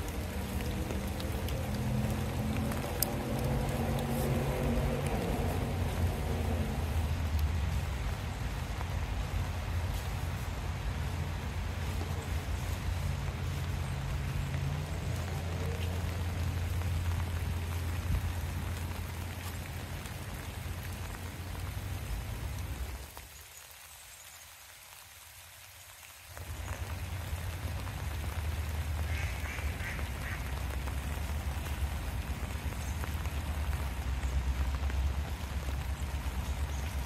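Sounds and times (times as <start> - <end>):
low rumble: 0.0 - 19.5
steady rain: 0.0 - 37.0
ducks quacking: 29.0 - 30.6.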